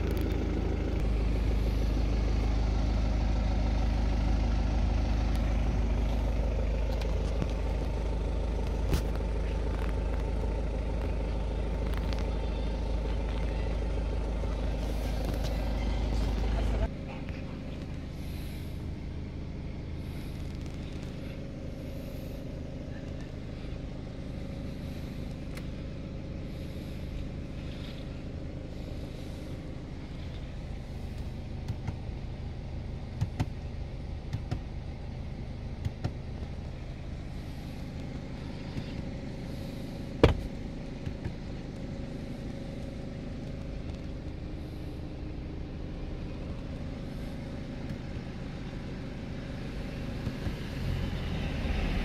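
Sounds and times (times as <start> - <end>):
car engine idling: 0.0 - 52.0.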